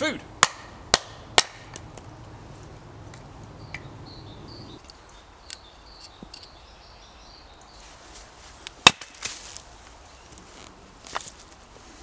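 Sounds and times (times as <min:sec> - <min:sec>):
hatchet splitting log crack: 0:00.4 - 0:02.0, 0:08.7 - 0:09.5.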